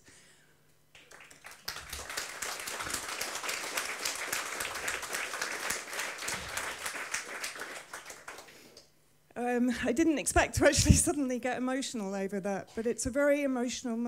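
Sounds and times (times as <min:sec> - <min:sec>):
audience applauding: 0:00.9 - 0:08.8.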